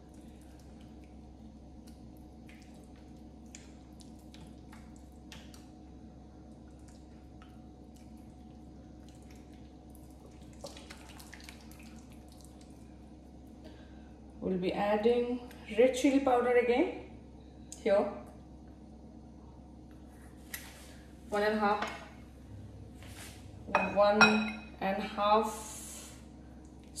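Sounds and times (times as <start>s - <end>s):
wet squelches of mixing: 0.0s - 14.1s
faint low hum: 0.0s - 27.0s.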